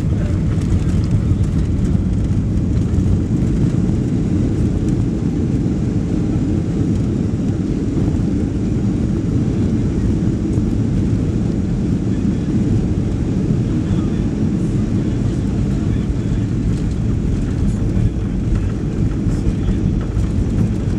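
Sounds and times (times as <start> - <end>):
airliner cabin rumble: 0.0 - 20.9.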